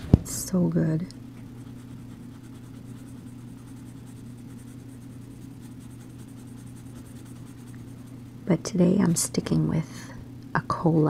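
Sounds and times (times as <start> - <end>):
steady low hum: 0.0 - 11.0
pencil scratching on paper: 1.5 - 8.1.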